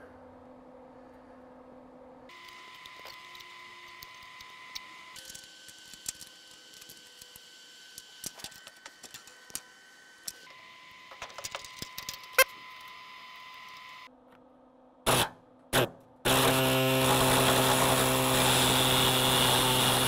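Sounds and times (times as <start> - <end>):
faint high whine: 0.0 - 14.1.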